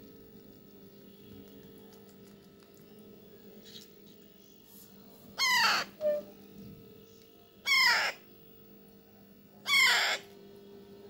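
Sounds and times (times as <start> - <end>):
parrot chick harsh squawks: 5.4 - 6.3, 7.6 - 8.2, 9.6 - 10.3.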